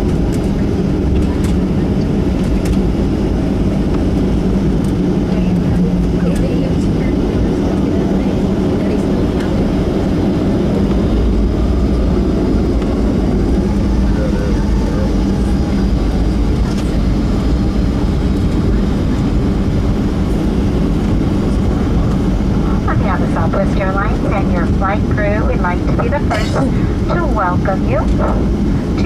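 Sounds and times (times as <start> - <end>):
jet engines in aircraft cabin: 0.0 - 29.0
low steady hum: 0.0 - 29.0.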